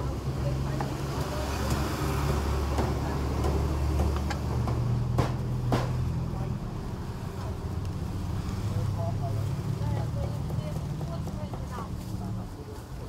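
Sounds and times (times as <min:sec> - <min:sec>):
sharp knocks: 0:02.7 - 0:06.1.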